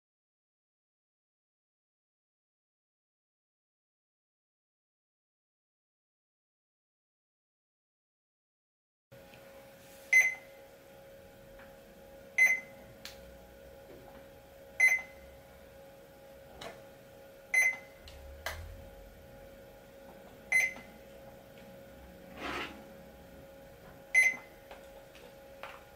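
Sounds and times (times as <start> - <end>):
barcode scanner beeping: 12.4 - 12.7, 14.8 - 15.2, 17.5 - 18.0, 20.5 - 20.9, 24.1 - 24.6.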